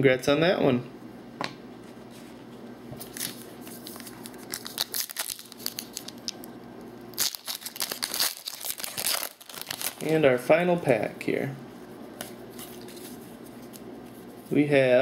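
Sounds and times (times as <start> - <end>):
wrapper crinkling: 3.1 - 6.5, 7.1 - 10.2.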